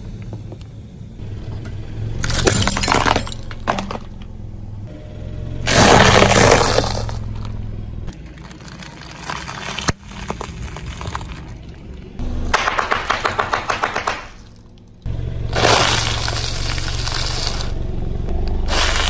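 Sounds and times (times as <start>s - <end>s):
pastries crunching under car tyre: 5.7s - 14.8s, 15.5s - 17.8s, 18.6s - 19.0s
plastic snack wrapper crackling: 8.2s - 11.8s
plastic bottles bursting with pops: 12.5s - 14.5s.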